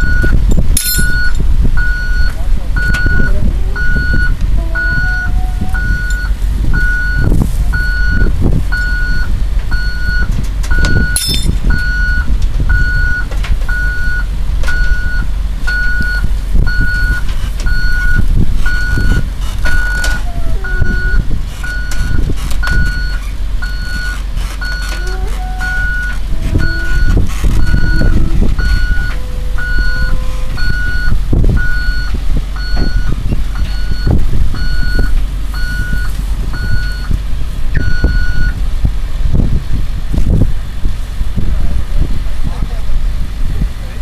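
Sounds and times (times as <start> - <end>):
steel tracks clanking: 0.0 - 3.2, 9.6 - 12.6
warning alarm beeping: 0.0 - 38.6
diesel engine under load: 0.0 - 44.0
high squeak: 18.9 - 31.0.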